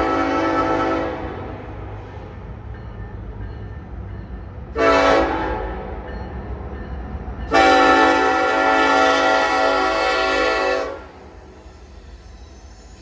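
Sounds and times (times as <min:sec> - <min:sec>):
locomotive air horn: 0:00.0 - 0:01.6, 0:04.7 - 0:05.8, 0:07.5 - 0:11.4
train rumbling: 0:00.0 - 0:13.0.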